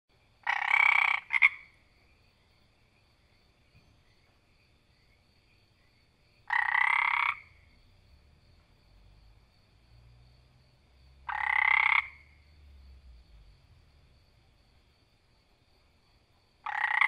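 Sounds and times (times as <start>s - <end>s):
frog croaking: 0.4s - 1.9s, 5.5s - 8.0s, 10.9s - 13.5s, 16.6s - 17.0s.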